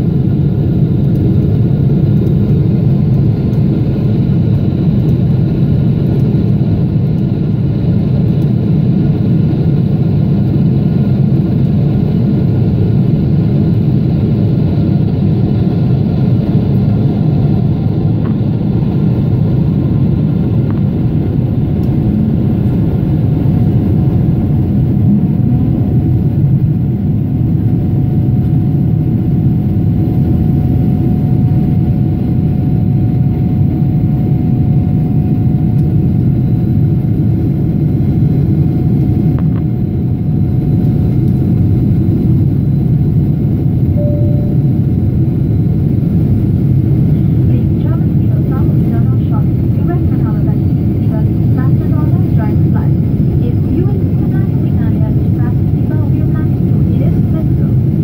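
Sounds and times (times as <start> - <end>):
jet engine rumble and rushing air: 0.0 - 58.0
faint steady tone: 43.9 - 44.8.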